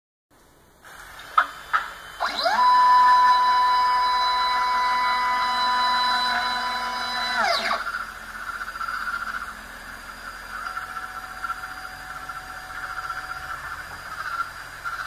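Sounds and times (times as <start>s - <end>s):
stepper motors whining: 0.9s - 15.0s
soft buzz: 2.2s - 7.9s.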